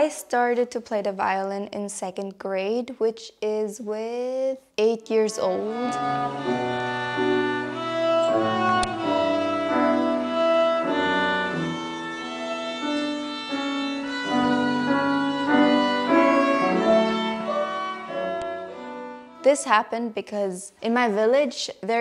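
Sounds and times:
violin playing a melody: 5.1s - 20.3s
piano accompaniment: 5.1s - 20.4s.

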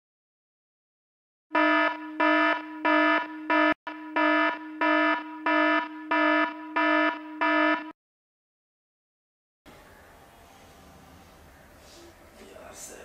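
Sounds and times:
alarm beeping: 1.5s - 8.0s.

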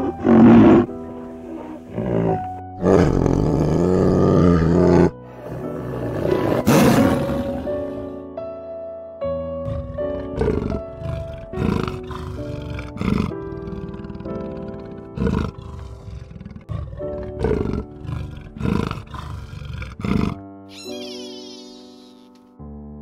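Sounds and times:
big cat roaring: 0.0s - 0.9s, 1.5s - 8.1s, 9.6s - 20.4s
background music: 0.0s - 23.0s.

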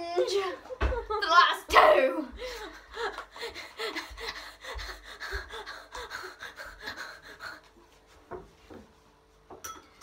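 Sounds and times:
woman gasping and panting: 2.3s - 7.8s.

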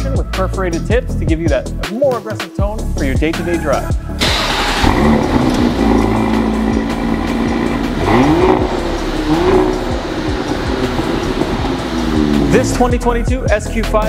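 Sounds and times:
car engine revving: 4.2s - 14.0s.

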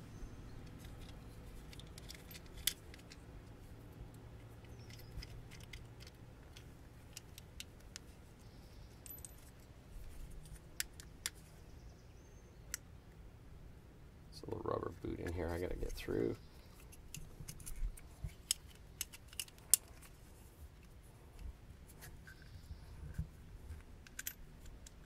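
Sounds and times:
wires clicking in connector: 4.4s - 8.1s, 16.9s - 20.1s.

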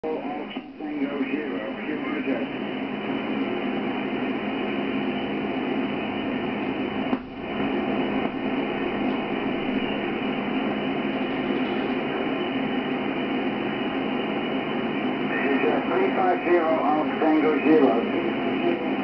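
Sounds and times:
radio static hiss: 0.0s - 19.0s.

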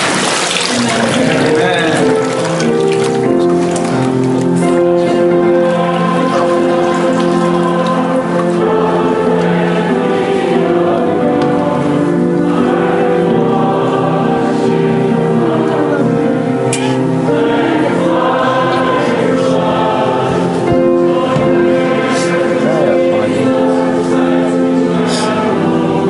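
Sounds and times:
choir singing a hymn: 0.6s - 26.0s.

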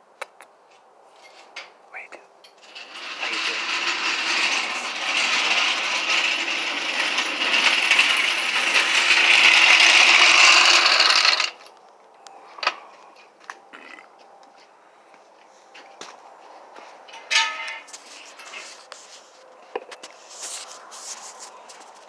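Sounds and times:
metallic rattling and scraping: 2.5s - 11.6s, 17.1s - 22.0s.

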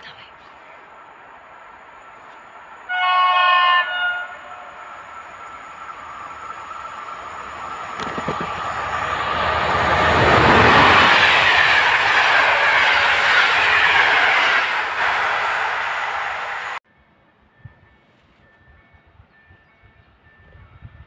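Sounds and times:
electric locomotive passing: 0.0s - 21.0s
train wheels clattering on rails: 7.7s - 15.2s.

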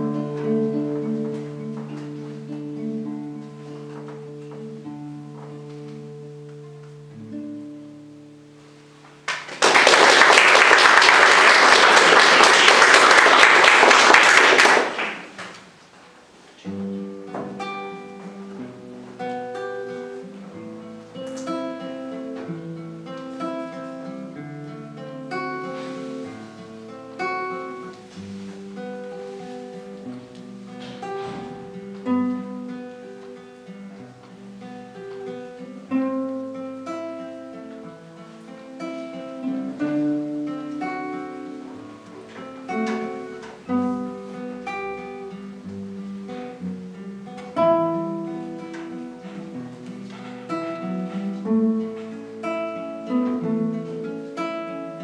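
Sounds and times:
guitar duo playing: 0.0s - 55.0s
audience applauding: 9.2s - 15.8s.

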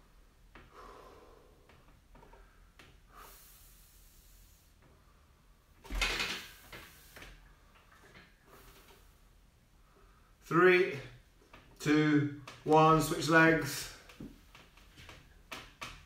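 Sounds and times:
man breathing quietly: 0.6s - 5.8s, 6.6s - 10.4s.

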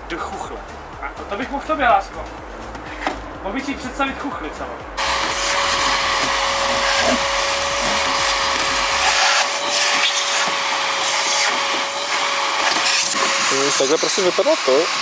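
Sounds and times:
vacuum cleaner whining: 5.0s - 15.0s.

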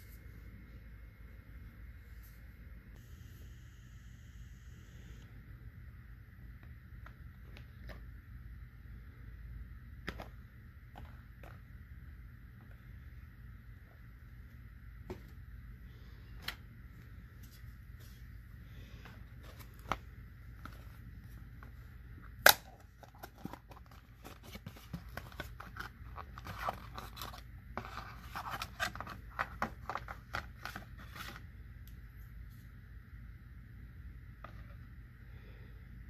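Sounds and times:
steady electrical hum: 0.0s - 36.0s
packaging crinkling and scraping: 22.7s - 31.4s.

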